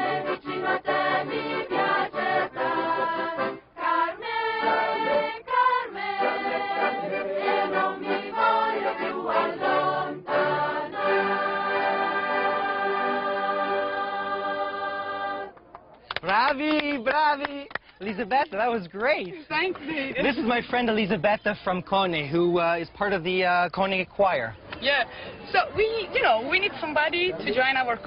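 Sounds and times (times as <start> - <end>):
choir singing: 0.0 - 15.6.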